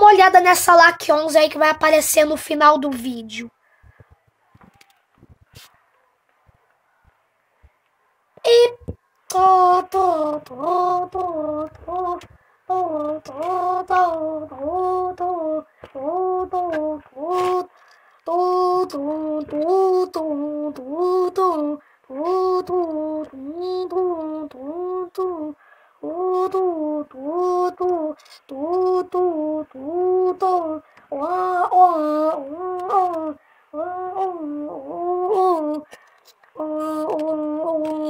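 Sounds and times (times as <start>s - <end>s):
person humming: 8.5s - 38.0s.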